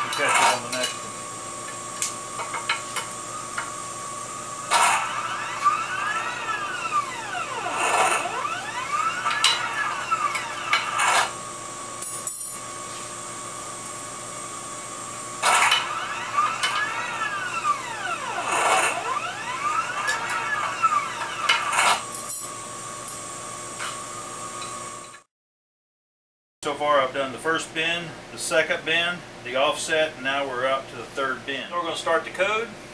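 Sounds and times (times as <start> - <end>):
motor whine sweeping in pitch: 0.0 - 25.0
steady motor hum: 0.0 - 25.2.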